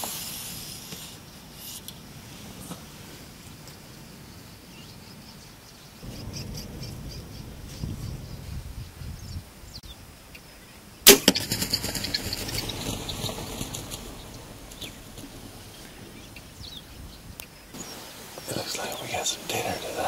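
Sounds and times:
rustling: 11.3s - 20.0s.

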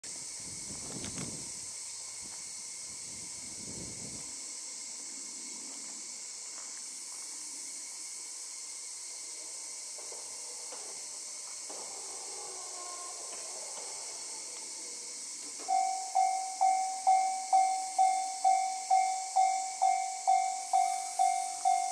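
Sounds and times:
high-pitched insect drone: 0.1s - 21.9s.

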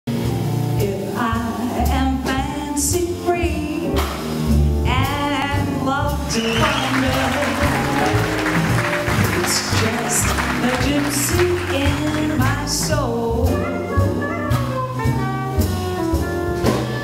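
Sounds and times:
small swing band playing: 0.1s - 17.0s
woman singing jazz: 0.4s - 16.3s
audience applause: 6.3s - 12.6s.

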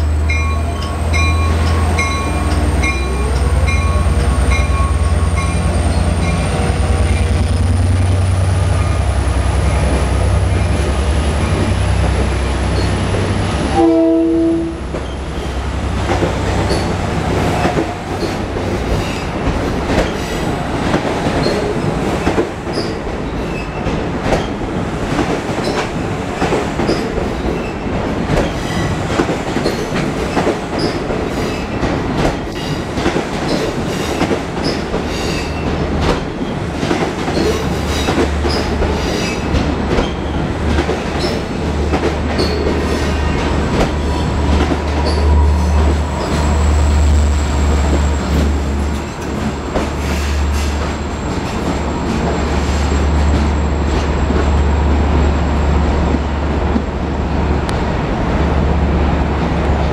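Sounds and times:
train wheels rushing on rails: 0.0s - 59.9s
clacks over rail joints: 16.0s - 46.5s
diesel locomotive rumble: 29.1s - 59.9s.

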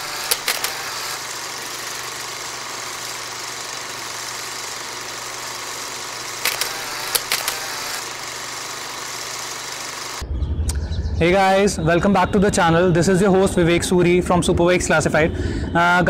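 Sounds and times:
motorcycle engine running: 0.0s - 10.2s.

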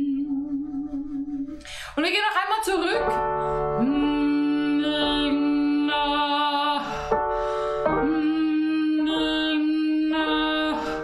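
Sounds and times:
breath: 1.6s - 2.0s, 6.9s - 7.8s.

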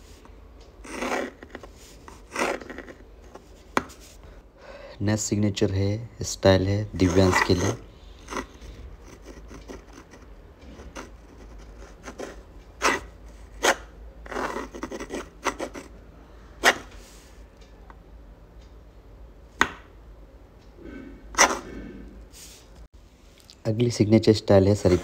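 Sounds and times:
pen scratching on paper: 0.8s - 4.1s, 7.0s - 15.9s, 21.4s - 21.7s.

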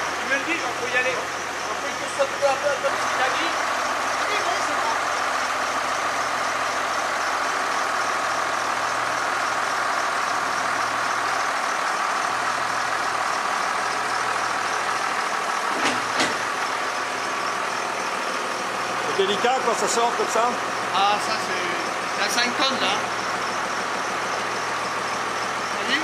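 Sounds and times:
tractor engine running: 0.0s - 26.0s.

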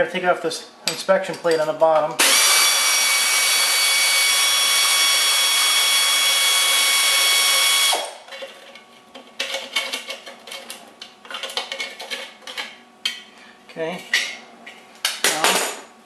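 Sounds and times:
power ratchet whining: 2.2s - 8.2s.

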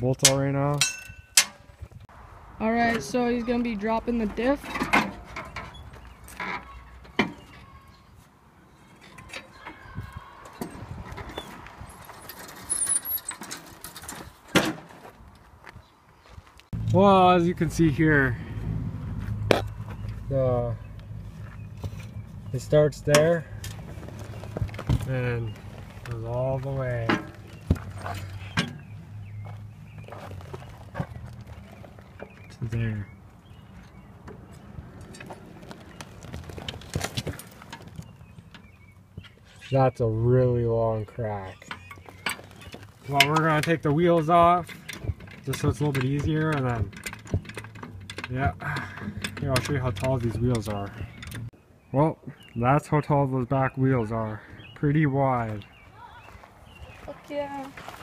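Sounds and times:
metal squeaking and scraping: 2.9s - 14.5s, 19.3s - 39.8s, 41.4s - 51.5s
metal knocks and clunks: 4.1s - 7.7s, 21.4s - 30.2s, 41.6s - 51.5s
footsteps on gravel: 14.0s - 16.8s, 19.1s - 22.6s, 23.7s - 32.5s, 33.4s - 38.4s, 55.3s - 58.0s
low rumble: 16.8s - 22.6s.

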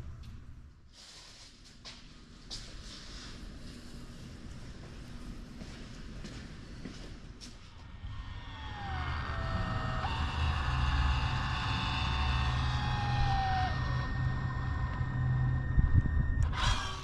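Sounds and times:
faint whine drifting in pitch: 3.1s - 17.0s
caulking gun motor humming: 8.3s - 17.0s.

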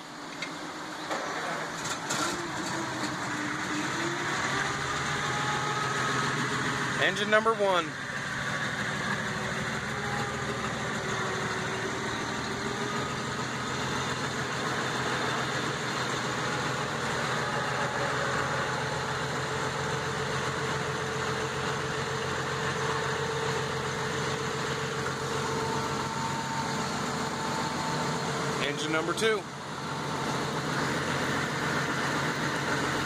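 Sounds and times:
fire engine idling: 0.0s - 33.0s.

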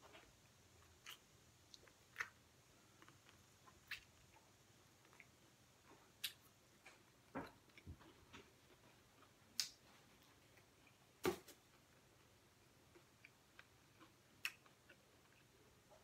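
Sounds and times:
eating clicks and smacks: 0.9s - 2.4s, 13.2s - 15.5s.

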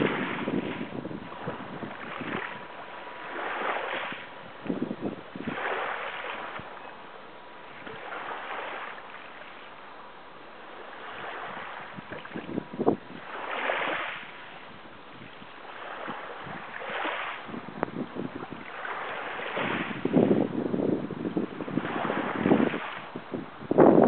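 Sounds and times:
wind buffeting microphone: 0.0s - 6.9s, 10.7s - 24.0s
small sea waves lapping: 0.0s - 24.0s.

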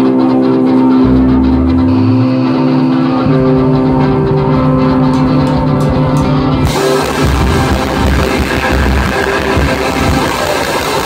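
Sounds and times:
electric guitars and bass: 0.0s - 11.0s
drums crashing: 3.4s - 11.0s.

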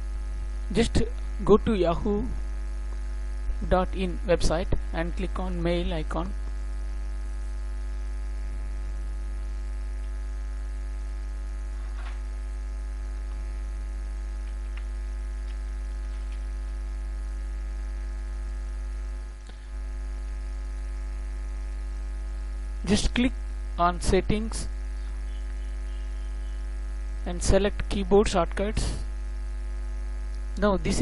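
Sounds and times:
electrical mains hum: 0.0s - 31.0s
faint clicks: 14.4s - 16.5s.

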